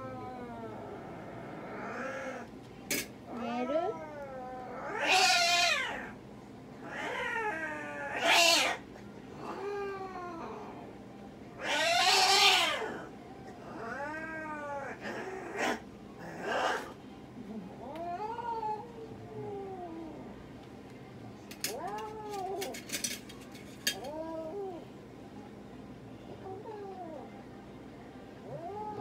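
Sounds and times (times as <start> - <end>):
cat yowling: 0.0 - 2.5, 3.4 - 6.2, 6.8 - 8.8, 11.6 - 16.9, 21.7 - 22.8, 28.5 - 29.0.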